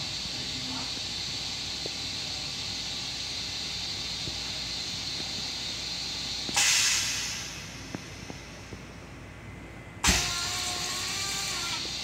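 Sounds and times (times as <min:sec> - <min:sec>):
steady hiss: 0:00.0 - 0:09.2.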